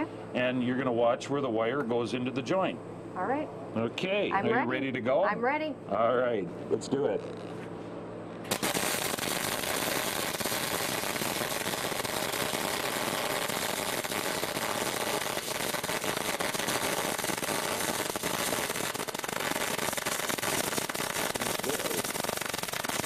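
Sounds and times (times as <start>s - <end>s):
welding arc crackling: 8.5s - 23.0s.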